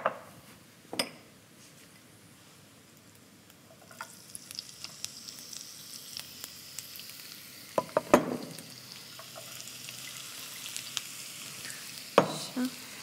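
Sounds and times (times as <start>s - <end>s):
oil sizzling and crackling: 2.9s - 13.0s.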